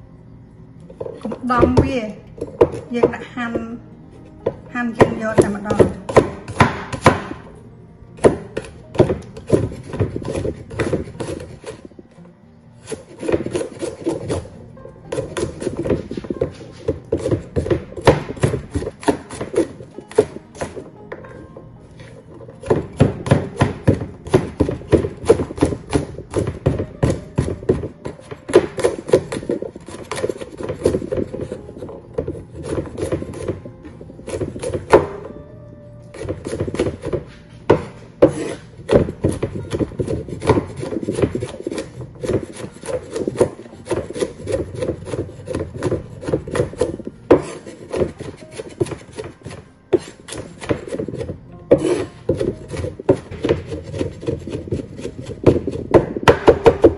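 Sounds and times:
cleaver chopping on wooden board: 0:05.0 - 0:07.4, 0:08.2 - 0:11.8, 0:12.9 - 0:14.4, 0:15.1 - 0:20.8, 0:22.6 - 0:31.6, 0:32.2 - 0:33.7, 0:34.3 - 0:35.3, 0:36.2 - 0:56.9.

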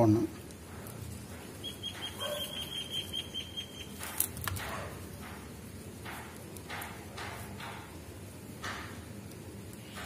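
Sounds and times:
fast high chirps: 0:01.6 - 0:04.0
plastic wire rustling and rubbing: 0:03.9 - 0:08.1.

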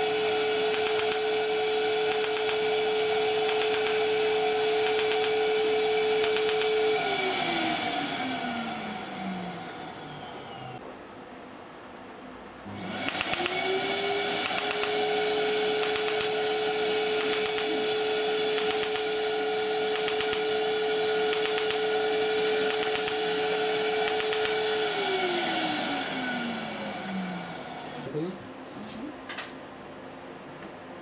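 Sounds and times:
machine hum: 0:00.0 - 0:11.0, 0:12.6 - 0:28.4
rapid clicking of laser pulses: 0:00.7 - 0:01.2, 0:02.1 - 0:02.6, 0:03.4 - 0:04.0, 0:04.8 - 0:05.4, 0:06.2 - 0:06.7, 0:13.1 - 0:13.6, 0:14.4 - 0:15.0, 0:15.8 - 0:16.4, 0:17.2 - 0:17.7, 0:18.5 - 0:19.1, 0:19.9 - 0:20.5, 0:21.2 - 0:21.9, 0:22.6 - 0:23.2, 0:24.0 - 0:24.6.

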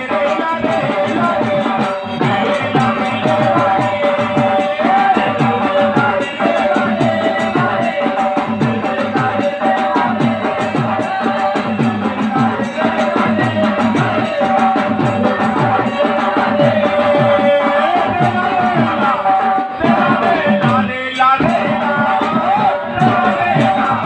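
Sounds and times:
fast drum beat: 0:00.0 - 0:24.0.

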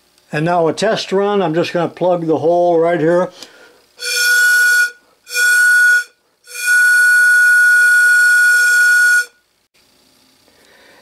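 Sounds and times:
steam whistle blasts: 0:04.0 - 0:09.4.

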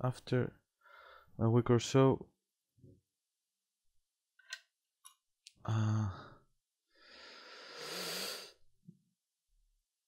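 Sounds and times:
man exhaling: 0:05.7 - 0:06.4, 0:07.0 - 0:08.6.

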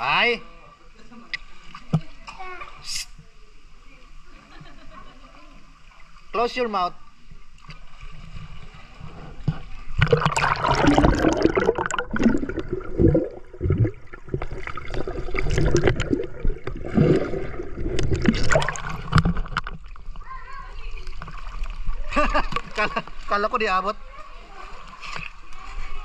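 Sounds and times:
underwater gurgling and bubbling: 0:09.4 - 0:20.2.

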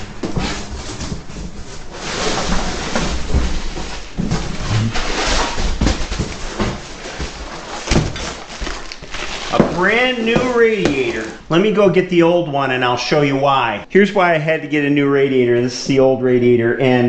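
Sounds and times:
cardboard rustling and scraping: 0:00.0 - 0:11.7.

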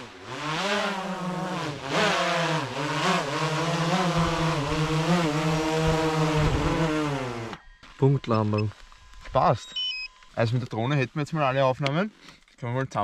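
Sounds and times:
drone propellers buzzing: 0:00.0 - 0:07.6
wind buffeting microphone: 0:05.6 - 0:07.1.

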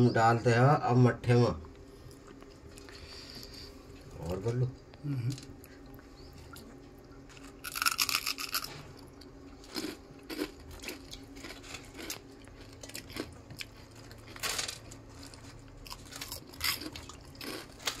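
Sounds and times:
fritters scraping and crunching: 0:07.3 - 0:18.0.

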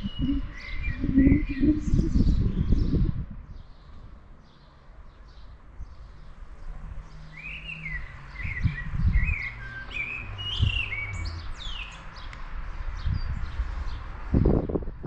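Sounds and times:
low rumble: 0:00.0 - 0:04.2
songbird singing: 0:00.0 - 0:15.0.

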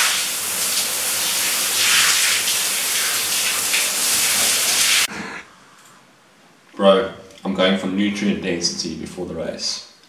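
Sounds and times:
shower water spraying: 0:00.0 - 0:05.1
water splashing on tiled floor: 0:00.0 - 0:05.1.

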